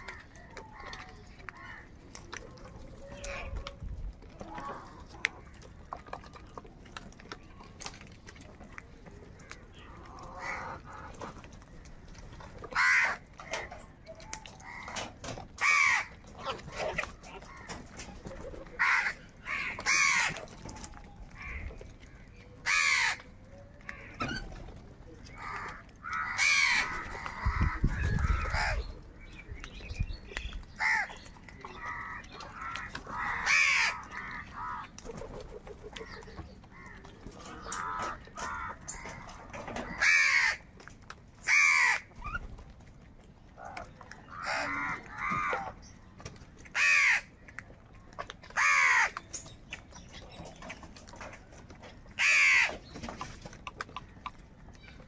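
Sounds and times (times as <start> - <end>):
crows cawing: 1.6 - 1.9, 10.2 - 11.1, 12.7 - 13.2, 14.6 - 16.1, 18.8 - 20.4, 21.4 - 21.8, 22.6 - 23.3, 25.4 - 28.9, 30.8 - 31.1, 31.7 - 34.9, 37.6 - 40.7, 41.4 - 42.1, 43.6 - 45.7, 46.7 - 47.3, 48.6 - 49.2, 52.2 - 52.8.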